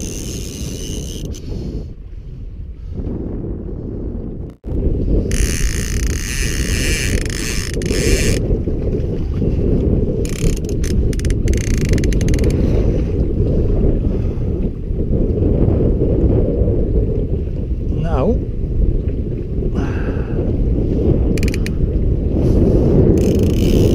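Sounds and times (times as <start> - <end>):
fishing reel ratchet clicking: 0.0 - 1.4, 5.3 - 8.4, 10.3 - 12.6, 21.4 - 21.7, 23.2 - 23.9
wind buffeting microphone: 0.0 - 23.9.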